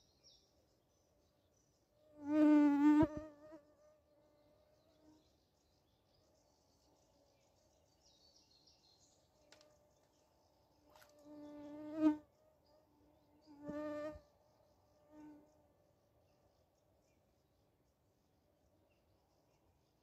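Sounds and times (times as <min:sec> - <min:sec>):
flying insect buzzing: 0:02.2 - 0:04.1, 0:11.0 - 0:12.4, 0:13.4 - 0:14.3.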